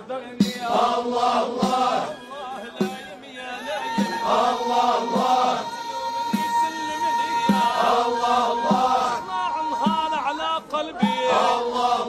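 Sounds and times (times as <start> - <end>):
drum beats: 0.2 - 12.0
men chanting together: 0.4 - 2.1, 4.0 - 6.6, 7.4 - 10.1, 10.8 - 12.0.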